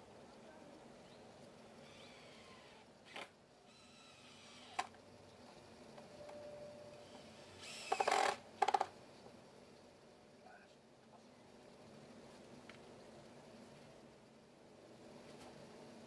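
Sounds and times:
cordless drill driving a screw: 0:01.8 - 0:04.9, 0:07.0 - 0:08.4.

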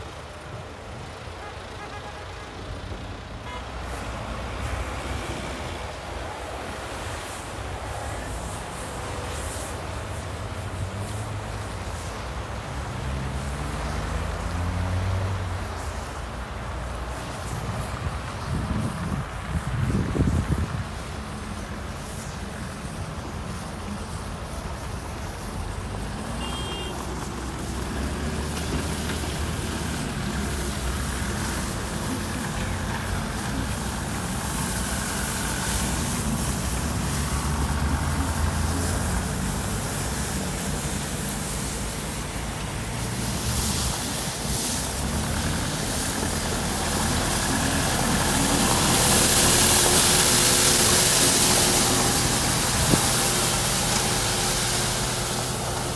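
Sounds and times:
rotary brush sweeping snow: 0:03.6 - 0:55.9
tractor engine running: 0:15.6 - 0:55.9.

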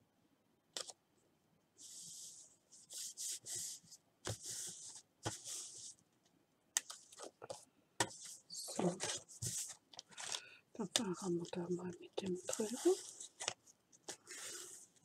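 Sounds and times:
paper rustling and rubbing: 0:01.8 - 0:06.0, 0:08.1 - 0:10.4, 0:12.3 - 0:15.0.

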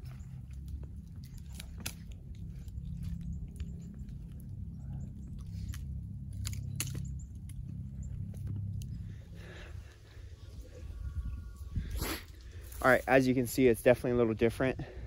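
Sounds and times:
crunching rustles: 0:00.0 - 0:14.0
wind buffeting microphone: 0:07.0 - 0:15.0.

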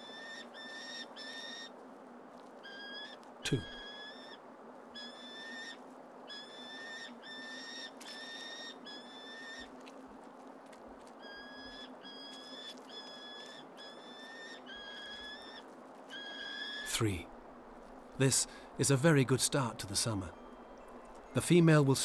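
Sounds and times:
falcon chick begging calls: 0:02.6 - 0:04.4.

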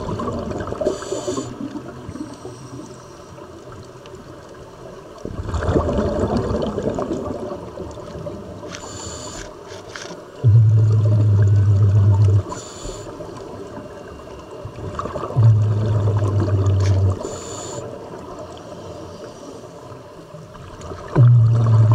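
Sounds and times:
bubbles rumbling on exhalation: 0:00.0 - 0:01.0, 0:05.2 - 0:08.3, 0:10.4 - 0:12.5, 0:14.8 - 0:17.3, 0:20.7 - 0:21.9
regulator inhalation hiss: 0:00.8 - 0:01.6, 0:08.8 - 0:09.6, 0:12.4 - 0:13.2, 0:17.1 - 0:18.0.

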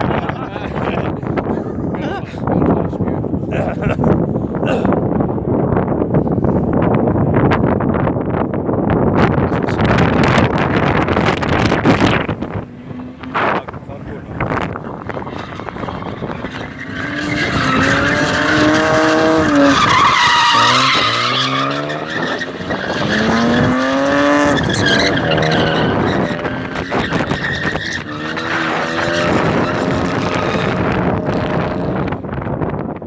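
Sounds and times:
car engine revving hard: 0:10.1 - 0:32.4
tyres screeching: 0:14.4 - 0:31.9.

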